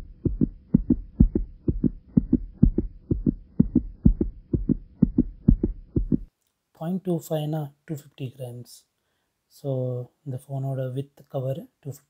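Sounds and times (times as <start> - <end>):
faint hum: 0.0 - 6.3
low heartbeat-like thuds: 0.0 - 6.3.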